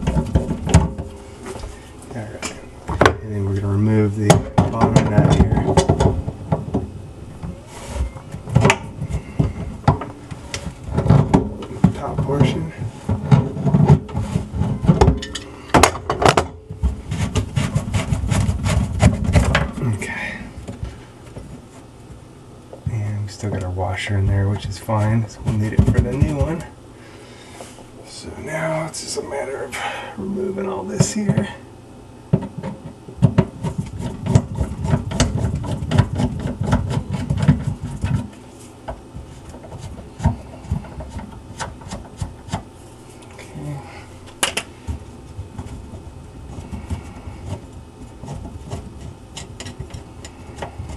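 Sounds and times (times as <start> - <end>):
sink strainer rattling and scraping: 0.0 - 1.2, 7.8 - 21.5, 32.3 - 42.7, 44.8 - 50.9
strainer parts knocking and clattering: 2.4 - 6.9, 8.3 - 20.0.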